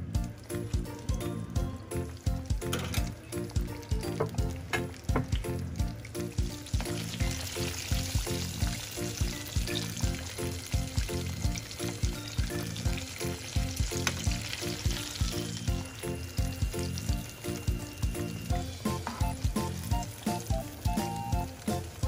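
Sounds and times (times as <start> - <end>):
music with steady beat: 0.0 - 22.0
oil bubbling and sizzling: 0.0 - 22.0.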